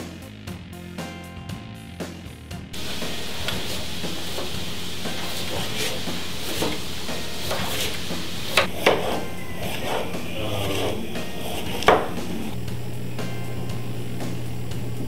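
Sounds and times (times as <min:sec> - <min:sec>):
steady background hiss: 0:02.8 - 0:15.0
knife chopping onion on board: 0:07.4 - 0:12.2.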